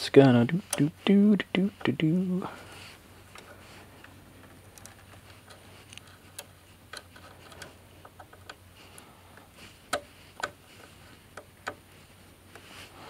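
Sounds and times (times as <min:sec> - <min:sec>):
faint low hum: 0:00.0 - 0:13.0
wire clicking into terminal block: 0:09.9 - 0:10.6.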